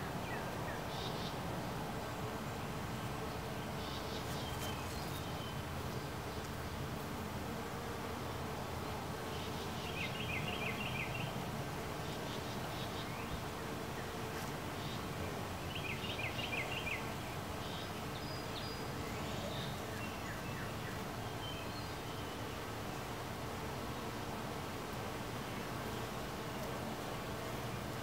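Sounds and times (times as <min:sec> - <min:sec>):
honeybees humming: 0:00.0 - 0:28.0
bird chirping: 0:03.7 - 0:06.5, 0:14.8 - 0:22.5.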